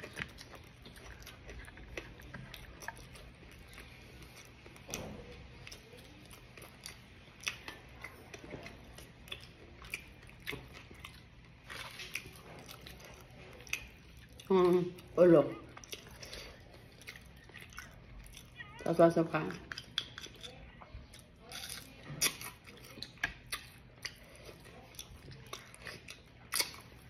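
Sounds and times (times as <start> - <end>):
wet chewing and biting: 0.0 - 18.8, 19.5 - 27.0.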